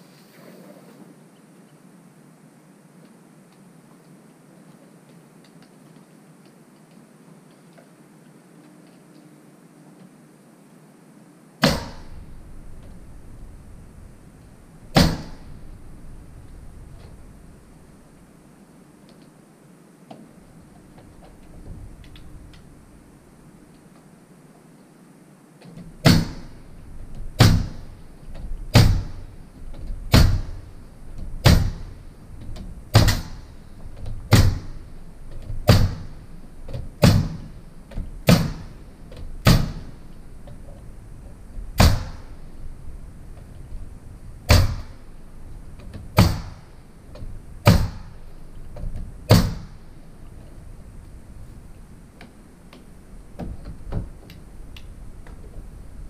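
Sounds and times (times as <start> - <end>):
nail gun firing: 11.6 - 12.3, 14.9 - 15.6, 26.0 - 26.6, 27.3 - 28.0, 28.7 - 29.4, 30.1 - 30.7, 31.4 - 32.0, 32.9 - 33.6, 34.3 - 34.9, 35.6 - 37.6, 38.2 - 38.8, 39.4 - 40.0, 41.8 - 42.4, 44.5 - 45.2, 46.2 - 46.7, 47.6 - 48.3, 49.3 - 49.9.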